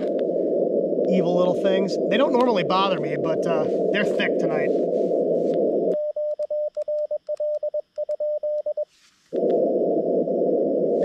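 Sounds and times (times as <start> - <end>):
radio receiver hiss: 0.0 - 6.1, 8.9 - 11.0.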